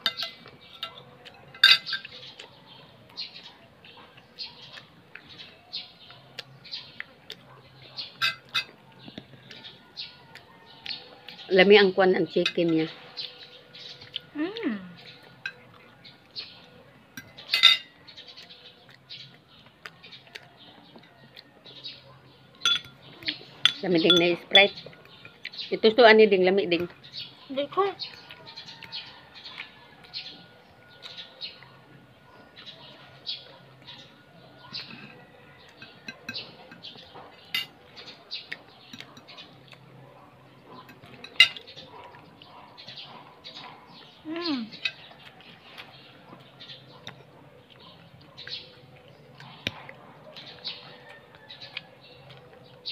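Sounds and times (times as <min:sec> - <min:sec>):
fork clinking on a plate: 0:00.0 - 0:02.2, 0:08.2 - 0:08.8, 0:17.2 - 0:18.0, 0:22.6 - 0:23.0, 0:23.6 - 0:25.4, 0:34.7 - 0:37.8, 0:40.8 - 0:42.0.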